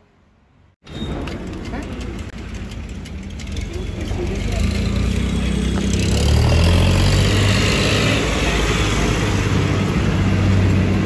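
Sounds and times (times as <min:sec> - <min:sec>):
tractor engine running: 0:00.9 - 0:07.6.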